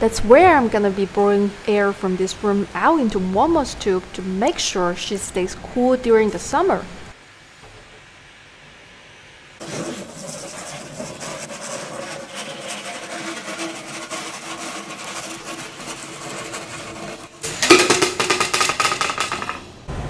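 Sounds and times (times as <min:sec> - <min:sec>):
hand saw cutting plastic pipe: 0:09.6 - 0:17.4.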